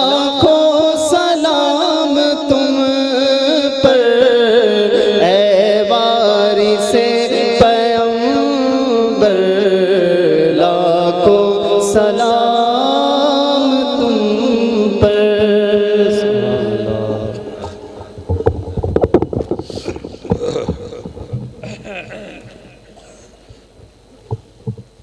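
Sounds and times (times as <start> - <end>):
men chanting: 11.9 - 18.0.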